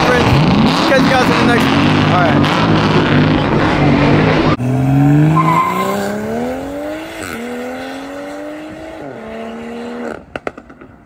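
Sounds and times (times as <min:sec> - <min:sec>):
car engine accelerating: 0:00.0 - 0:10.8.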